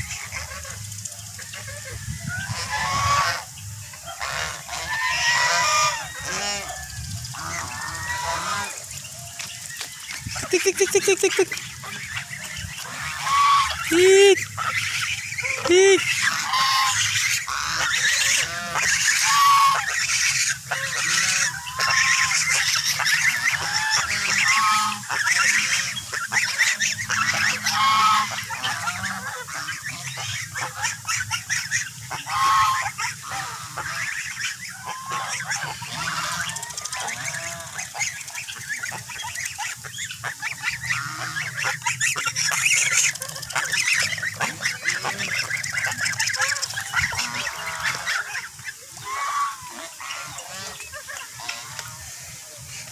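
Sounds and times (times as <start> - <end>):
flock of geese honking: 0.0 - 52.9.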